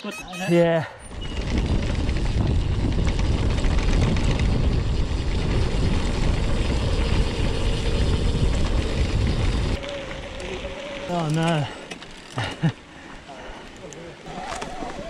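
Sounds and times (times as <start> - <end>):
wind buffeting microphone: 1.0 - 10.9
mountain bike rattling: 1.0 - 15.0.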